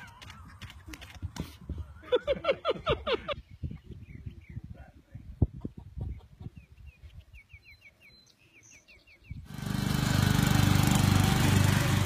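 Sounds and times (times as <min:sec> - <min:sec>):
lawn mower engine running: 0:09.4 - 0:12.0.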